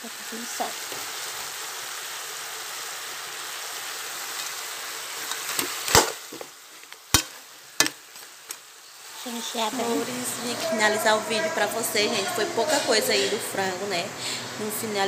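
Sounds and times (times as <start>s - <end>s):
chicken sizzling in a pot: 0.0s - 15.0s.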